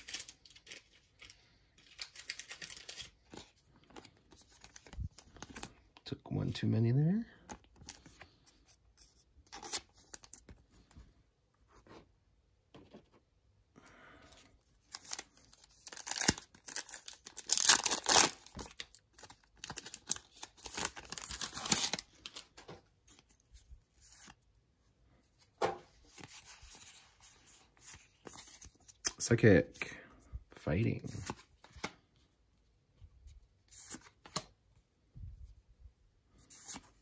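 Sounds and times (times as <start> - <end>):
foil wrapper tearing and crinkling: 15.0 - 22.4.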